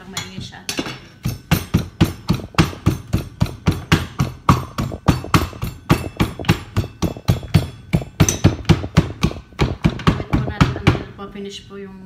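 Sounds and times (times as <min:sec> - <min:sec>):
knocking in a metal cup: 0:00.8 - 0:11.1.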